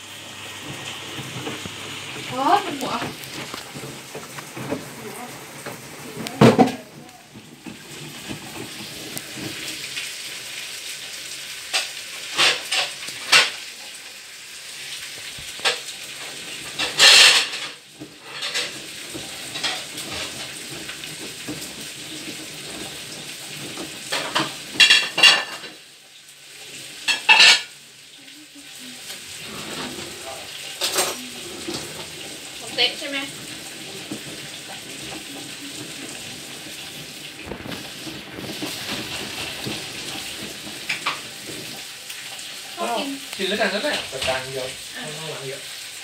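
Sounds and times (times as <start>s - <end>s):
washing machine sloshing water: 0.0s - 13.9s, 14.6s - 46.0s
laundry splashing and clattering: 0.0s - 14.0s, 14.8s - 46.0s.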